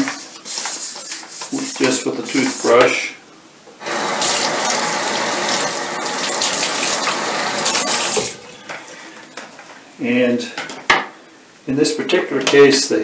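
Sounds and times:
faucet running into sink: 0:03.8 - 0:08.5.

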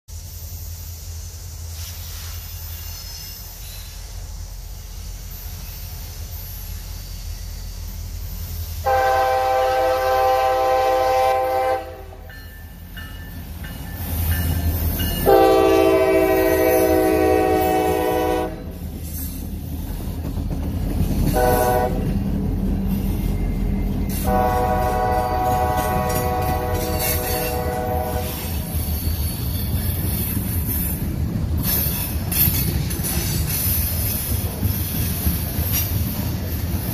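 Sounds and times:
train rumble: 0:00.1 - 0:36.9
locomotive air horn: 0:08.8 - 0:12.3, 0:15.2 - 0:18.8, 0:21.3 - 0:22.2, 0:24.2 - 0:28.7.

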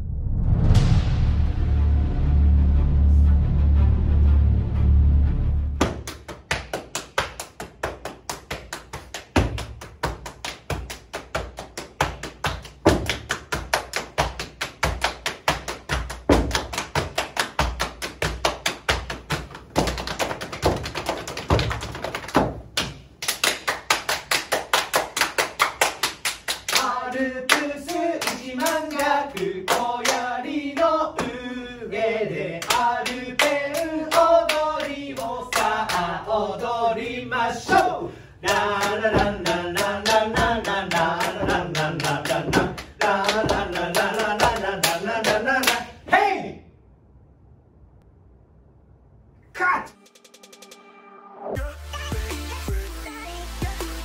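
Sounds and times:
rhythmic body percussion pats: 0:05.8 - 0:31.4, 0:32.6 - 0:36.1, 0:37.6 - 0:45.9
voices singing: 0:26.8 - 0:46.1
foot stamps: 0:39.2 - 0:39.4.

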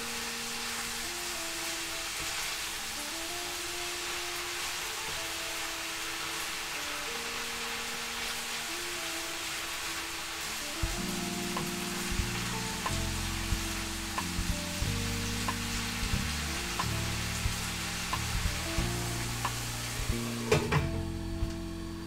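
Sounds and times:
food sizzling in oil: 0:00.0 - 0:20.5
background music with chords: 0:00.0 - 0:22.0.

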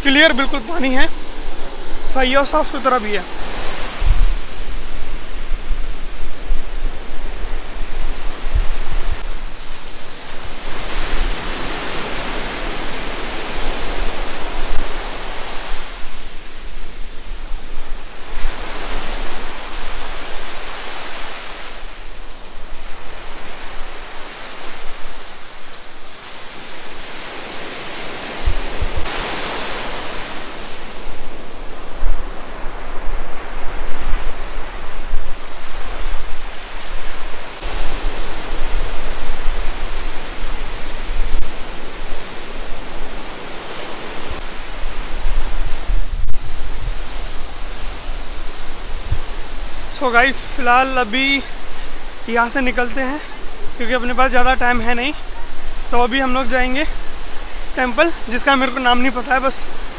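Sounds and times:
sea waves breaking on beach: 0:00.0 - 0:59.9.

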